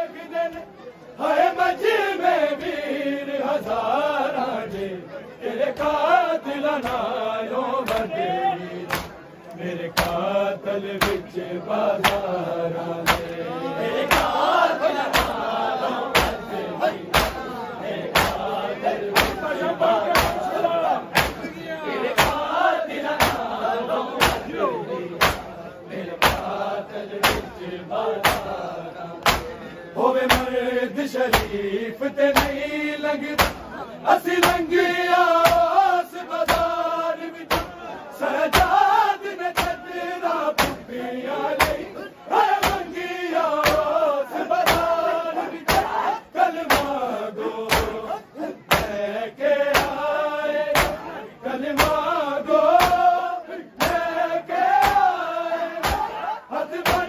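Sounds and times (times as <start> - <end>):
men chanting in chorus: 0.0 - 57.0
hands slapping chests: 6.8 - 7.1, 7.8 - 8.2, 8.8 - 10.3, 11.0 - 11.3, 12.0 - 12.4, 13.0 - 13.4, 14.1 - 14.5, 15.1 - 15.5, 16.1 - 16.5, 17.1 - 17.5, 18.1 - 18.5, 19.1 - 19.5, 20.1 - 20.5, 21.2 - 21.5, 22.2 - 22.5, 23.2 - 23.5, 24.2 - 24.5, 25.2 - 25.5, 26.2 - 26.6, 27.2 - 27.6, 28.2 - 28.6, 29.2 - 29.6, 30.3 - 30.6, 31.3 - 31.6, 32.3 - 32.6, 33.4 - 33.7, 34.4 - 34.7, 35.4 - 35.7, 36.4 - 36.8, 37.4 - 37.7, 38.5 - 38.8, 39.5 - 39.8, 40.5 - 40.9, 41.6 - 41.9, 42.6 - 42.9, 43.6 - 43.9, 44.6 - 45.0, 45.6 - 46.0, 46.6 - 47.0, 47.7 - 48.0, 48.7 - 49.0, 49.7 - 50.0, 50.7 - 51.1, 51.7 - 52.0, 52.7 - 53.1, 53.8 - 54.0, 54.7 - 55.1, 55.8 - 56.2.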